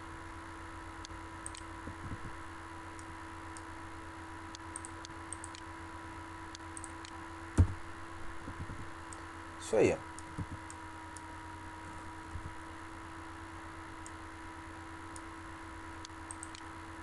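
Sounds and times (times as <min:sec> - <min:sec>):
electrical hum: 0:00.0 - 0:17.0
computer mouse clicks: 0:01.4 - 0:01.7, 0:04.5 - 0:05.6, 0:16.0 - 0:16.7
thump: 0:07.6 - 0:07.8.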